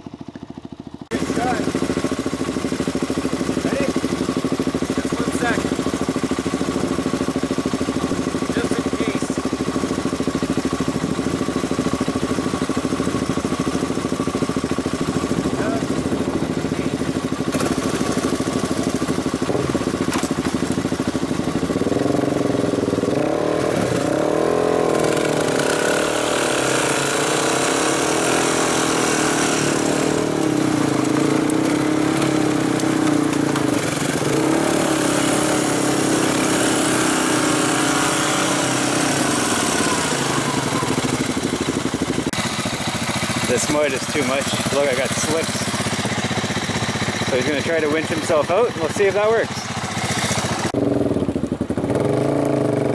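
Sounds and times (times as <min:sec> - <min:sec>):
atv engines revving: 0:00.0 - 0:52.9
wheels spinning in mud: 0:00.0 - 0:52.9.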